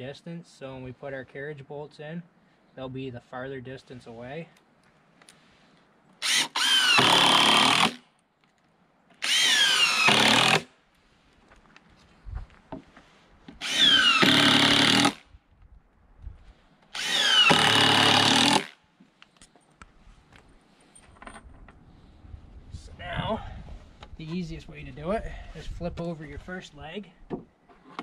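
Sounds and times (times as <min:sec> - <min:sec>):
drill driving screws into wood: 0:06.2 - 0:08.0, 0:09.2 - 0:10.7, 0:13.6 - 0:15.2, 0:16.9 - 0:18.8.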